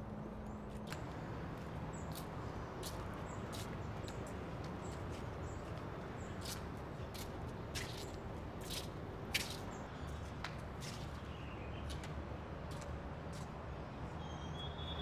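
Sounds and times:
faint high chirp: 14.2 - 15.0.

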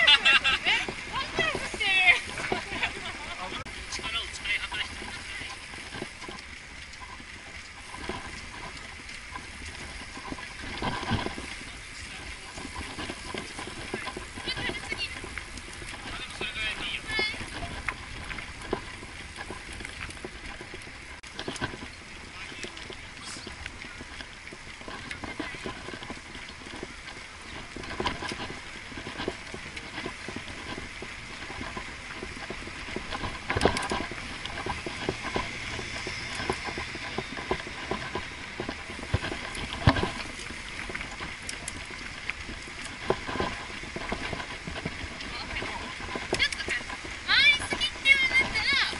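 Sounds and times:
wind noise: 0.0 - 48.9.

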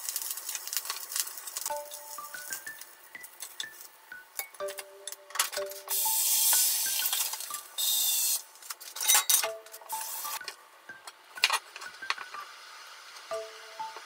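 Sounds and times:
short bursts of hiss: 5.9 - 8.4.

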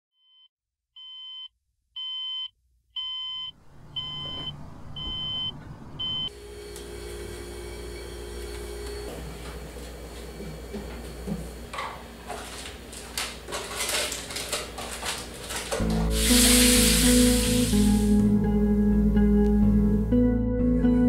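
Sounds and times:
alarm clock beeping: 1.0 - 6.3.

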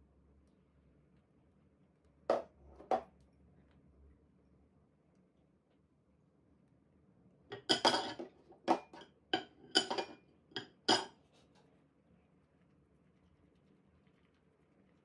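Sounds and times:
metal sieve tapping: 7.5 - 11.1.

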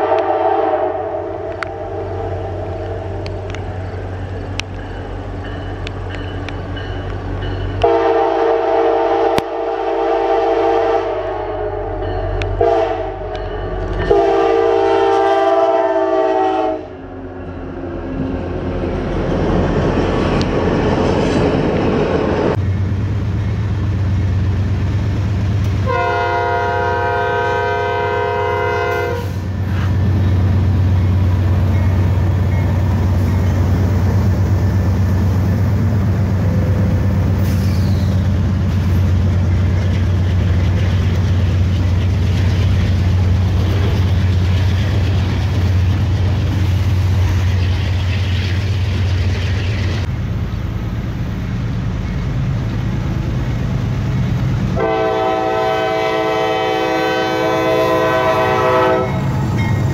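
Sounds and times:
locomotive horn: 0.0 - 3.6, 7.8 - 17.2, 25.8 - 29.9, 54.7 - 59.7
diesel locomotives rumbling past: 0.0 - 59.9.

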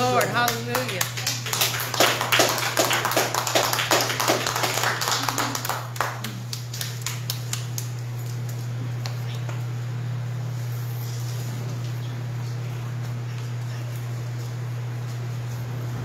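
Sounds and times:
people applauding: 0.0 - 8.4
steady low hum: 0.0 - 16.0.

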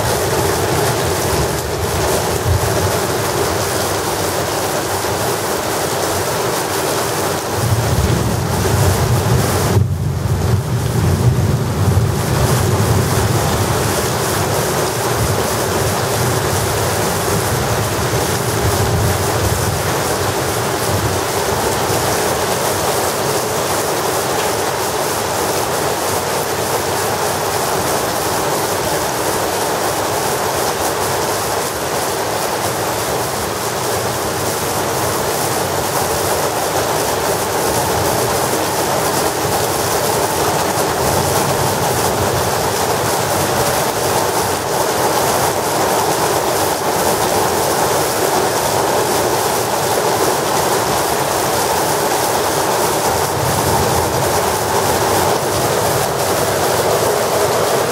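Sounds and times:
heavy rain pouring: 0.0 - 57.9
low thunder rumble: 7.5 - 14.0.

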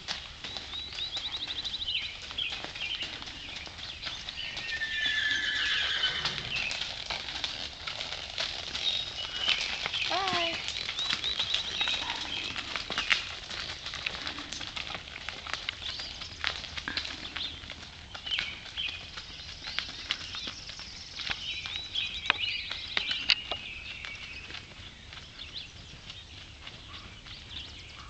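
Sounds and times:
hooves clopping on gravel: 0.0 - 28.0
birds chirping and singing: 0.1 - 28.0.

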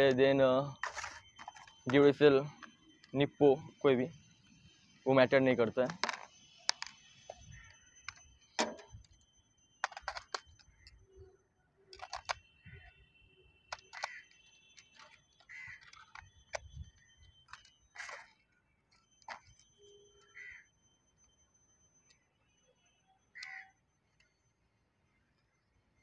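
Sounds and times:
plastic controller clicks and knocks: 5.6 - 9.2, 9.8 - 11.0, 11.9 - 12.9, 13.7 - 18.3, 19.2 - 19.7.

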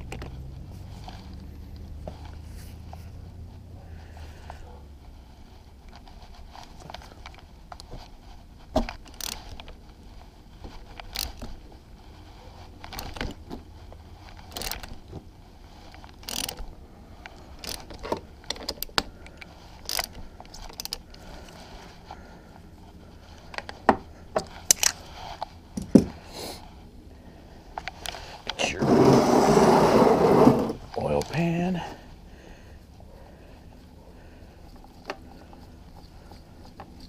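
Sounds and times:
hand ratchet clicking: 9.0 - 9.6, 14.4 - 14.9, 16.0 - 16.7, 17.3 - 21.0.

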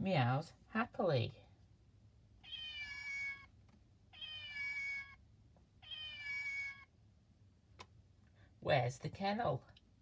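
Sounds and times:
toy cat meow: 2.4 - 3.5, 4.1 - 5.2, 5.8 - 6.9.

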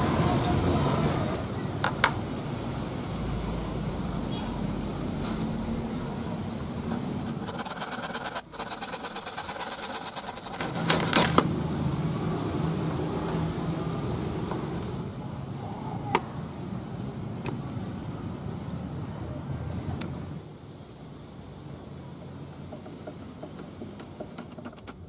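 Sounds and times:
saw rasping through wood: 7.3 - 11.4.

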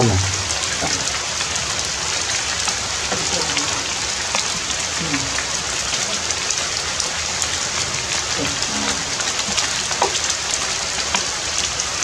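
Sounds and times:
rain drops ticking on umbrella: 0.0 - 12.0
rain falling through foliage: 0.0 - 12.0.

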